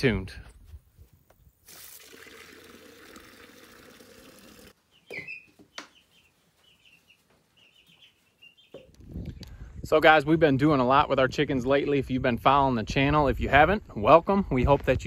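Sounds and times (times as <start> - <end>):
water running from hose: 1.6 - 4.8
chicks chirping: 4.8 - 8.9.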